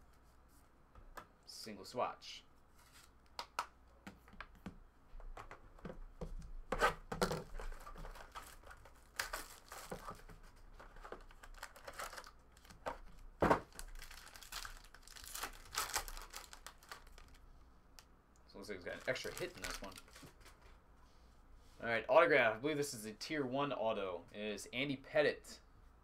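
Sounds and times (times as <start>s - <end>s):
foil wrapper tearing and crinkling: 7.8s - 10.0s, 11.3s - 12.8s, 13.7s - 17.4s, 18.9s - 20.2s.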